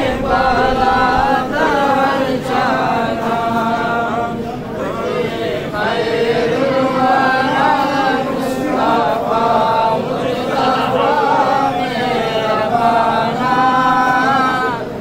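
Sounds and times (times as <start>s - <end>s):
men chanting unaccompanied: 0.0s - 15.0s.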